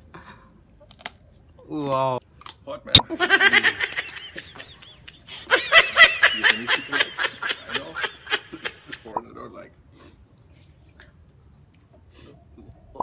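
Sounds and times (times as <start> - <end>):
high giggling laughter: 3.1 - 9.2.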